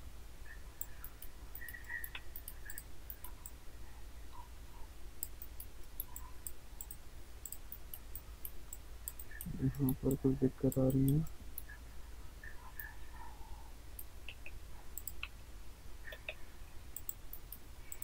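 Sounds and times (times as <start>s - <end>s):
low steady hum: 0.0s - 18.0s
computer mouse clicks: 0.8s - 3.6s, 5.2s - 10.1s, 14.0s - 15.4s, 16.1s - 16.4s, 17.0s - 18.0s.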